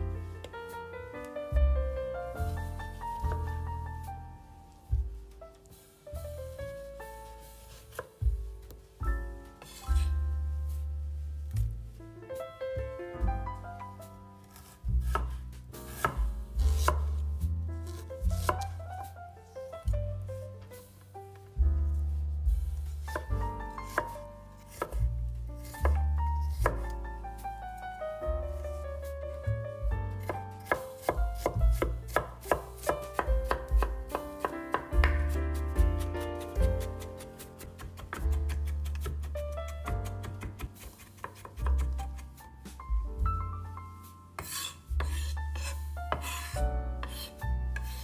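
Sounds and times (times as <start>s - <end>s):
background music: 0.0s - 48.0s
knife chopping on cutting board: 7.9s - 8.4s, 14.6s - 17.2s, 17.9s - 18.8s, 23.0s - 25.1s, 25.7s - 27.0s, 30.2s - 42.3s, 44.4s - 48.0s.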